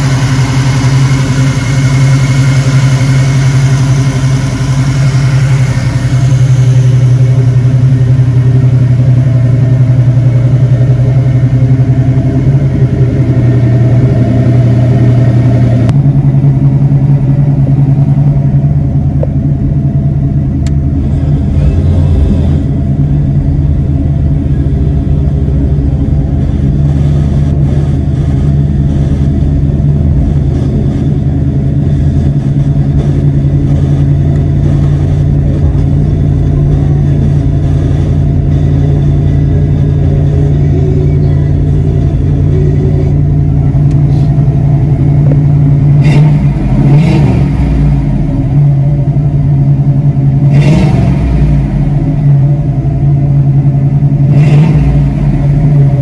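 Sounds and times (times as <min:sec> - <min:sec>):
car engine idling: 0:00.0 - 0:56.0.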